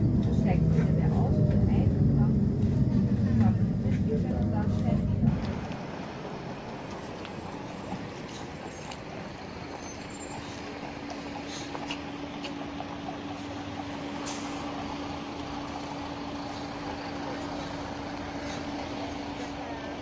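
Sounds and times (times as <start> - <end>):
bus engine humming: 0.0 - 20.0
short hiss: 14.2 - 14.7.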